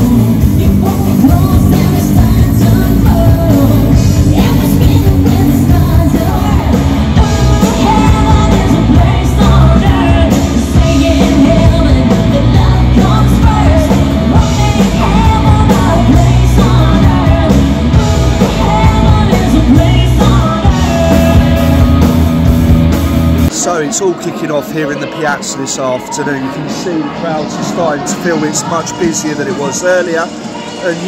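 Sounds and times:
woman singing: 0.0 - 22.3
bass: 0.0 - 23.6
electric guitars: 0.0 - 23.6
drums: 0.0 - 31.0.

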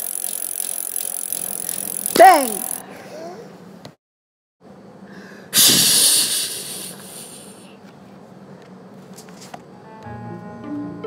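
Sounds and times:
loud hiss of air rushing out: 5.6 - 7.5.

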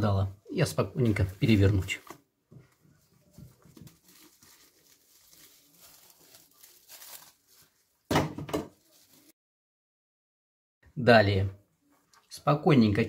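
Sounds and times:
plastic container handling noise: 1.0 - 9.3
cling film crinkling: 3.0 - 8.1, 8.7 - 9.3.

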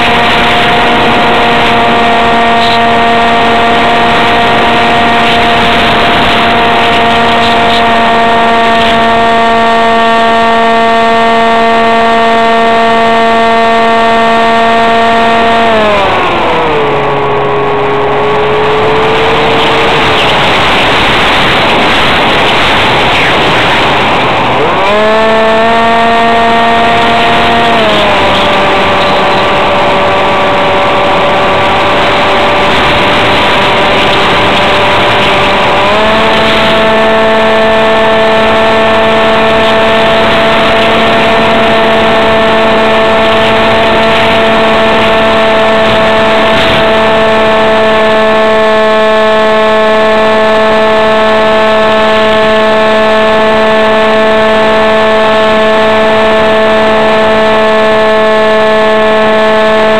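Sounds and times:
electric motor and propeller whining: 0.0 - 59.9
wind rush: 15.3 - 48.3.

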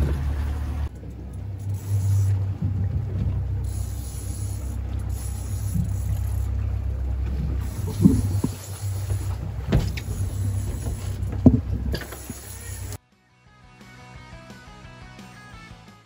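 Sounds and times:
outboard motor running: 0.0 - 13.0
sharp knocks on hull: 9.6 - 10.2.

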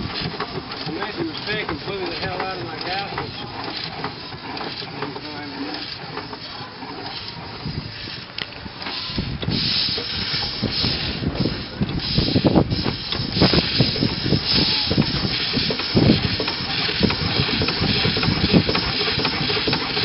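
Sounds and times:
steam engine hissing: 0.0 - 20.0.

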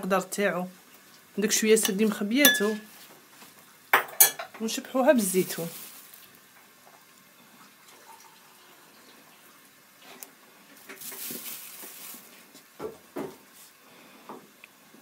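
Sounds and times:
soft knocks and rustles: 10.8 - 13.7.

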